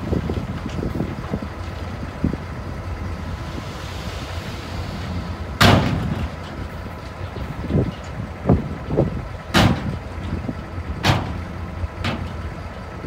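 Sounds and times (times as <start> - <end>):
truck engine rumble: 0.0 - 13.0
loud bang: 5.6 - 6.4.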